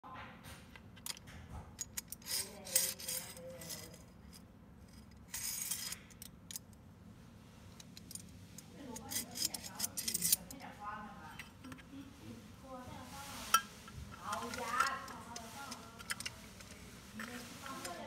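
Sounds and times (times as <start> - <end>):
rubbing and scraping: 2.1 - 4.3, 12.9 - 18.0
metal brackets clinking: 8.9 - 10.6.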